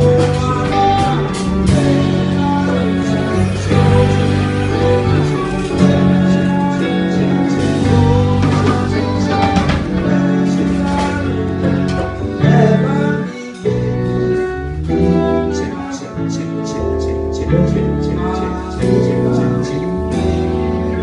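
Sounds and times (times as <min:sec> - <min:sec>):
drum kit: 0:00.0 - 0:21.0
guitar: 0:00.0 - 0:21.0
keyboard: 0:00.0 - 0:21.0
person singing: 0:00.0 - 0:21.0
violin: 0:00.0 - 0:21.0.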